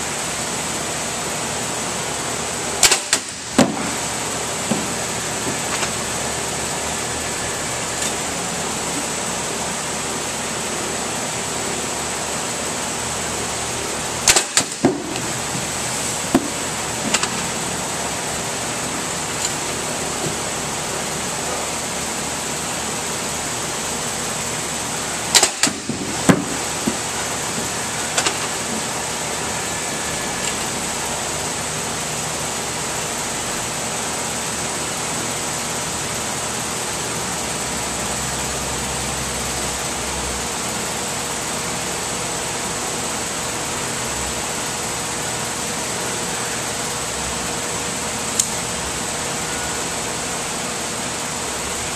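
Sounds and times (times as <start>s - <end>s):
thin high whine: 48.8s - 51.9s.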